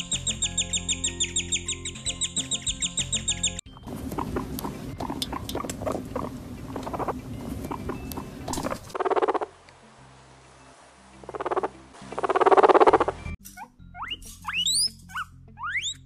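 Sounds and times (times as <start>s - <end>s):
guinea pig squeaky grunts: 2.1s - 9.0s, 12.4s - 16.0s
guinea pig buzzing purr: 3.9s - 9.5s, 11.3s - 13.1s.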